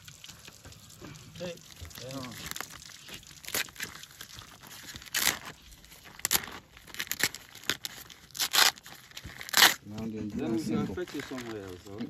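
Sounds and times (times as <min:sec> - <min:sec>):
paper sack tearing and rustling: 0:02.4 - 0:12.0.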